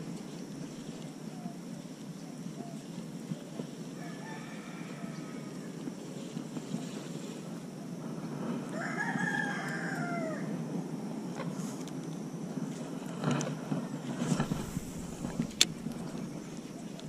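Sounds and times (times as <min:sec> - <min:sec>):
rooster crowing: 0:04.0 - 0:05.7, 0:08.7 - 0:10.6.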